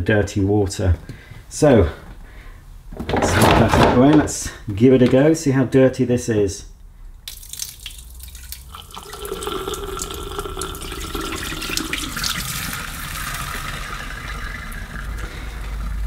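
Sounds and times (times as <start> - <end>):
water pouring into sink: 7.3 - 16.0.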